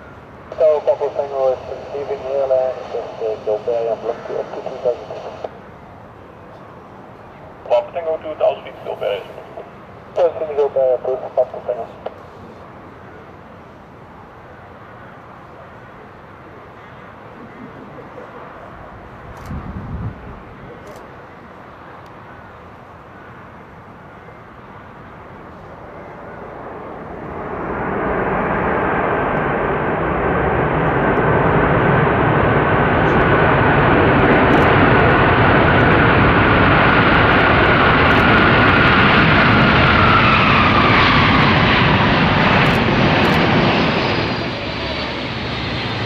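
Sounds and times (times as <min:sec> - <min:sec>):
jet engines rushing with high whine: 0:00.0 - 0:46.0.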